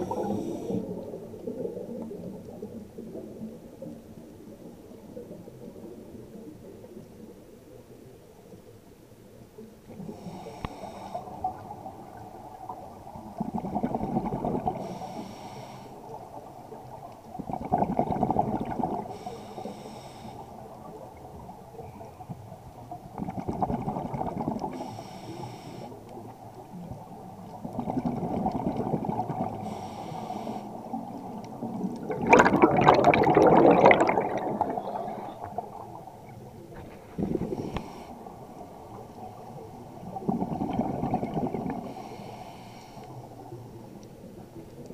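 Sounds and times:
regulator inhale hiss: 0:00.0 - 0:01.1, 0:10.0 - 0:11.6, 0:14.8 - 0:16.2, 0:19.0 - 0:20.8, 0:24.7 - 0:26.2, 0:29.5 - 0:31.1, 0:37.4 - 0:38.9, 0:41.8 - 0:43.6
exhaled bubbles underwater: 0:00.0 - 0:08.2, 0:09.9 - 0:15.3, 0:16.1 - 0:19.6, 0:20.4 - 0:24.9, 0:26.1 - 0:42.3.

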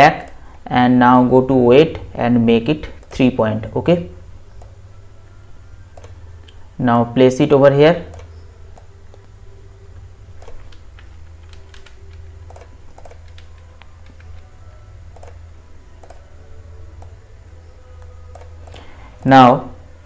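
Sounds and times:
steady low hum: 0:00.0 - 0:20.0
computer mouse clicks: 0:06.0 - 0:06.6, 0:08.1 - 0:09.3, 0:10.4 - 0:14.5, 0:15.1 - 0:15.4, 0:16.0 - 0:16.2, 0:18.0 - 0:19.3.

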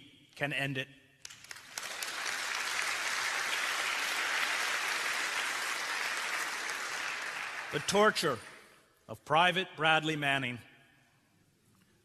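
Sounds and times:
audience applauding: 0:01.3 - 0:08.5.

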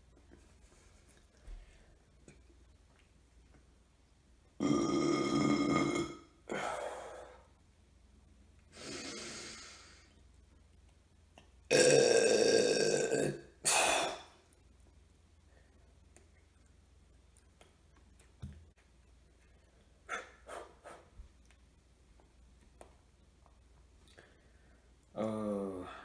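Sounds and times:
man burping loudly: 0:04.6 - 0:06.6, 0:11.7 - 0:14.3.

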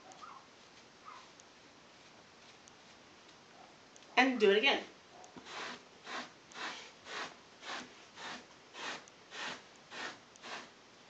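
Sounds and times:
bristle brush scratching blanket: 0:05.4 - 0:10.8.

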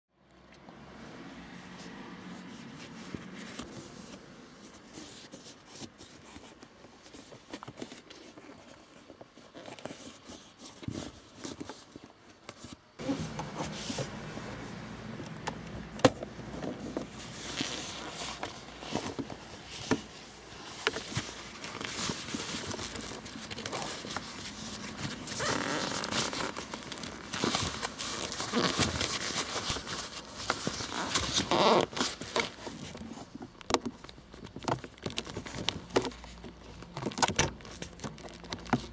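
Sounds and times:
leather rustling and crinkling: 0:01.6 - 0:38.9.

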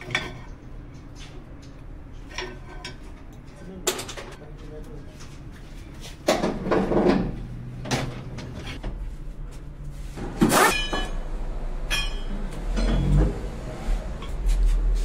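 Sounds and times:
wrench clanking on metal hub: 0:10.5 - 0:11.2, 0:11.9 - 0:13.2
wrench scraping metal: 0:10.5 - 0:11.2.

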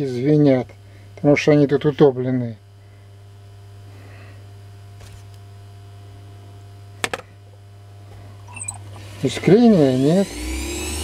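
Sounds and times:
electric motor humming: 0:08.4 - 0:11.0.

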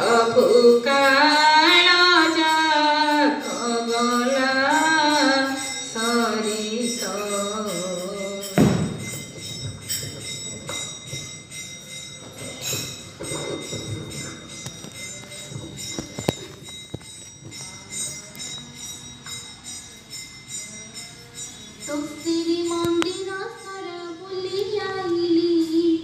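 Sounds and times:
jingling percussion: 0:00.0 - 0:26.0
sustained ringing tones: 0:00.0 - 0:26.0
loud percussion hit: 0:08.6 - 0:09.2.

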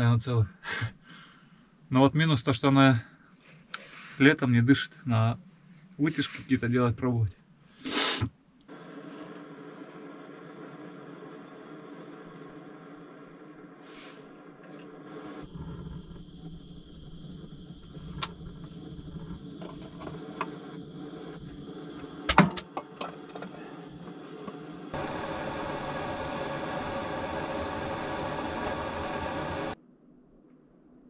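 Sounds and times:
torch lighter hissing: 0:07.8 - 0:29.8.

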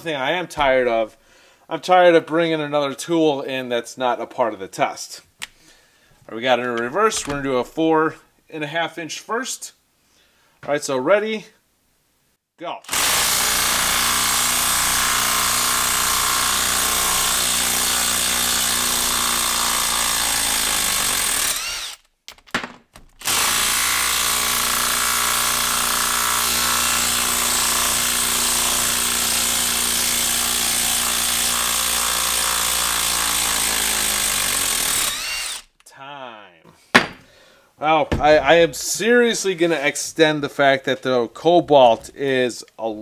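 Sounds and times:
impact driver hammering: 0:36.9 - 0:37.3.

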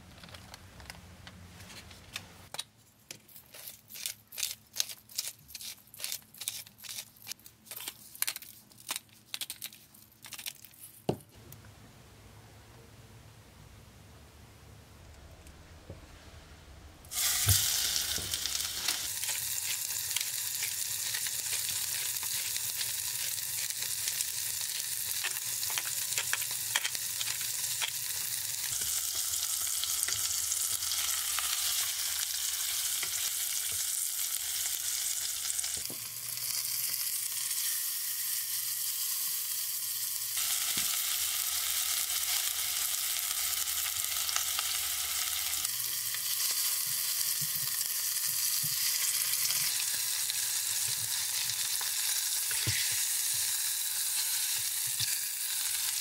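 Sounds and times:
fish frying in hot oil: 0:17.1 - 0:56.0.

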